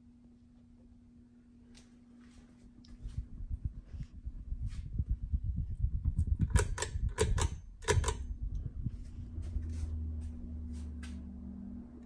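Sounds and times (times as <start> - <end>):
fan motor humming: 0.0 - 12.0
pull-chain switch clicking: 6.4 - 8.2.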